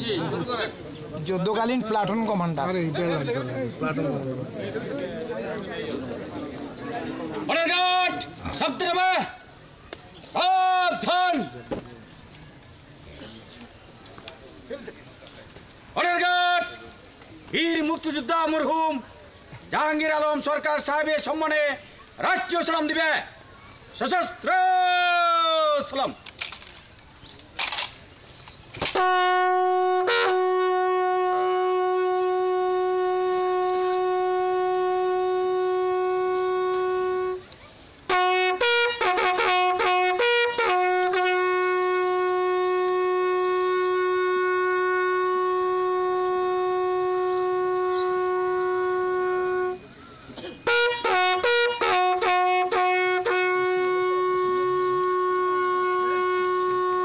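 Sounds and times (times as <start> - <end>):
bugle call: 28.8 - 37.5, 38.1 - 50.0, 50.6 - 57.0.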